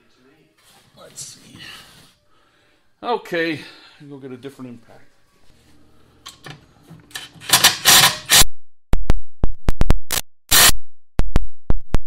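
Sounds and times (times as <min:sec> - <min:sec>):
impact driver hammering: 0:07.4 - 0:08.4.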